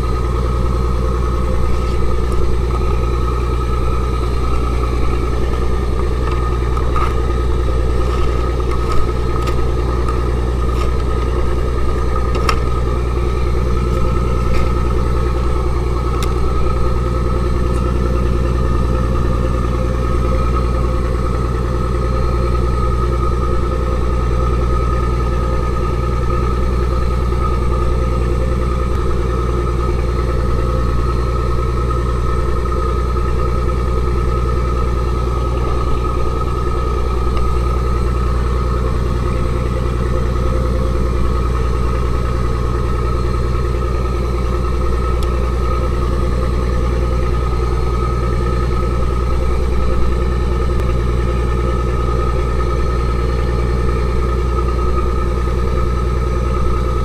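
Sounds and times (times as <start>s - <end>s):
boat engine droning: 0.0s - 57.0s.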